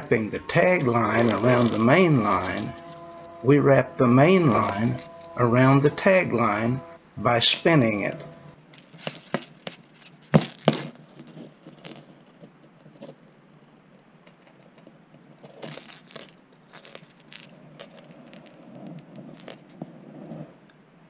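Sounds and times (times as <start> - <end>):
metal hooks clicking and jingling: 0.4 - 3.4, 4.5 - 5.4, 7.4 - 12.3, 15.4 - 19.9.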